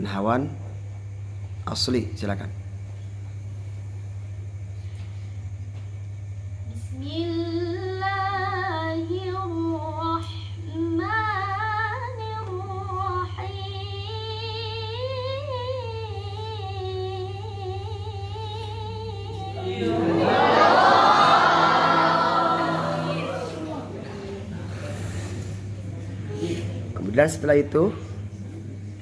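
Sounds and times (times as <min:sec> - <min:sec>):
steady low hum: 0:00.0 - 0:29.0
girl reciting in ornamented chant: 0:06.7 - 0:23.5.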